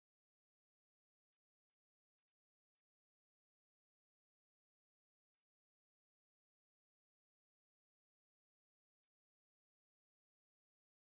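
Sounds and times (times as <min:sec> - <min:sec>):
faint high-pitched click: 0:05.2 - 0:05.6, 0:08.9 - 0:09.3.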